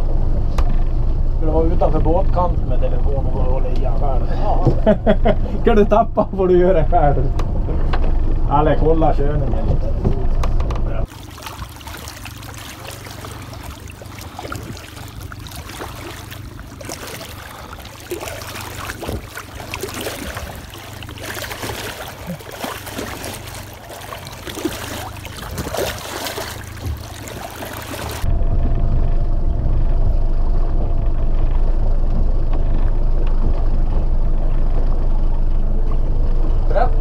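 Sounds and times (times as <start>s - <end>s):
low engine rumble: 0.0s - 37.0s
small water splashes: 11.0s - 28.3s
water rushing along a boat: 11.0s - 28.6s.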